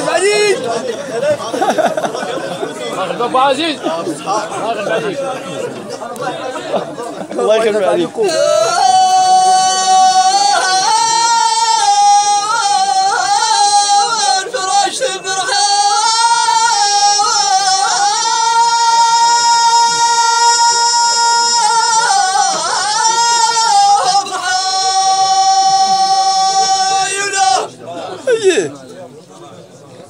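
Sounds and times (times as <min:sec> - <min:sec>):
man singing high ornamented notes: 0:08.2 - 0:27.7.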